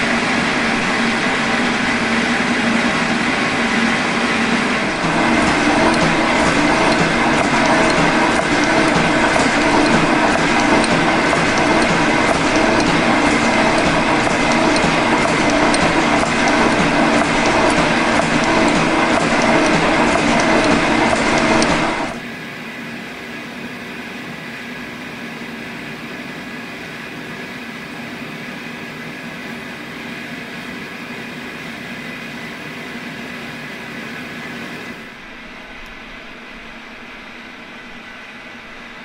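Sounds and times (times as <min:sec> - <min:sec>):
quiet steady machine hum: 0:00.0 - 0:39.0
metal shaper cutting: 0:04.8 - 0:22.2.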